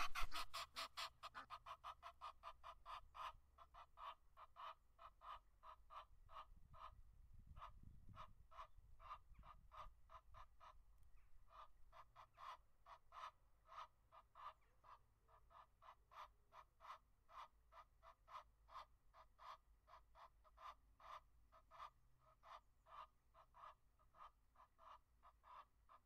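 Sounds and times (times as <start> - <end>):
goose honking: 0.0 - 1.5.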